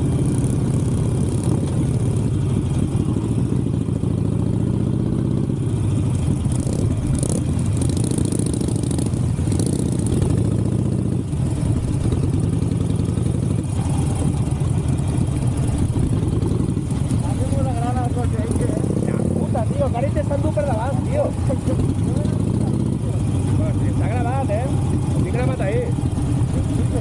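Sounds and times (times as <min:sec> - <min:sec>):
motorcycle engine revving: 0:00.0 - 0:27.0.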